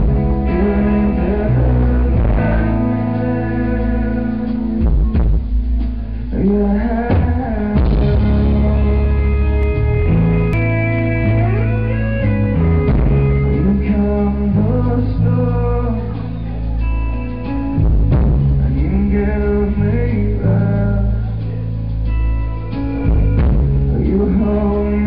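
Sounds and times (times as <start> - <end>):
man singing: 0.0 - 5.3, 6.0 - 10.2, 13.0 - 16.8, 18.5 - 21.8, 23.9 - 25.0
electric guitars: 0.0 - 25.0
heavy bass line: 0.0 - 25.0.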